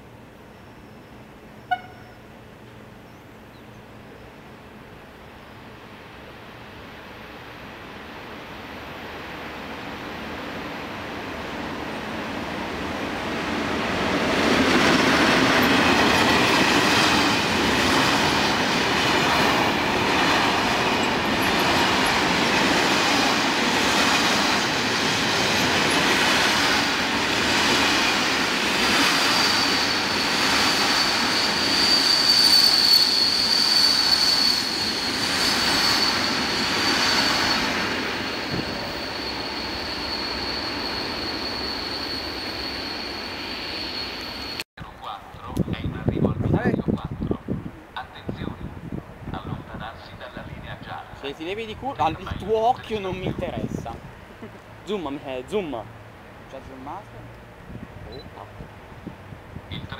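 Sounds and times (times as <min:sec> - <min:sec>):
freight train rumbling and clattering: 0:11.2 - 0:31.9, 0:45.5 - 0:55.1.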